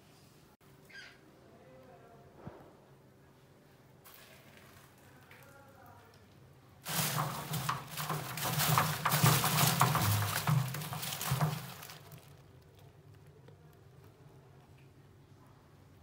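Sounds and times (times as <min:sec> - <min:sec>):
mice scrabbling over plastic pellets: 0:06.8 - 0:14.2.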